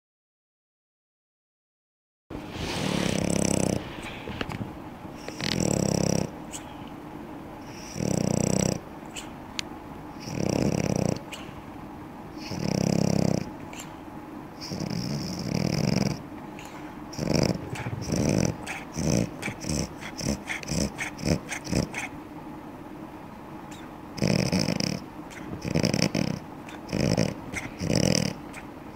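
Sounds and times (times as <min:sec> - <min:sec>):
dog snoring and snorting: 0:02.5 - 0:06.8, 0:07.6 - 0:09.4, 0:10.1 - 0:11.6, 0:12.3 - 0:14.0, 0:14.6 - 0:22.2, 0:23.7 - 0:28.7.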